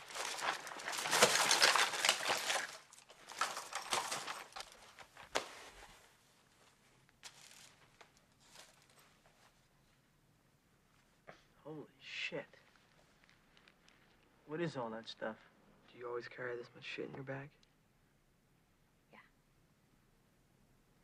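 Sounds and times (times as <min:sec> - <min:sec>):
rustling and crinkling of bag contents: 0:00.0 - 0:09.7, 0:12.6 - 0:14.3.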